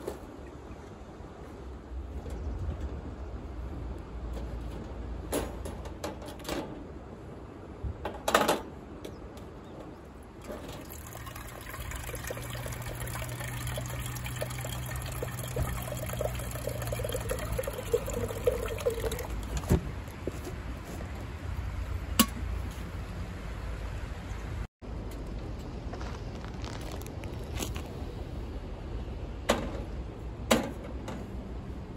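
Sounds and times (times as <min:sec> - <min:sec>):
water pouring into kettle: 0:10.4 - 0:19.6.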